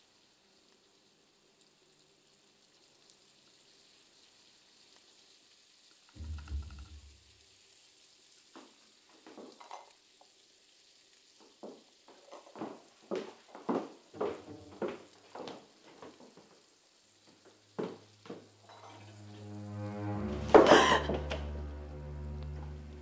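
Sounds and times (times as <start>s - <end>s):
faint sizzle: 0.0s - 23.0s
utensils and dishes clinking: 18.6s - 19.2s.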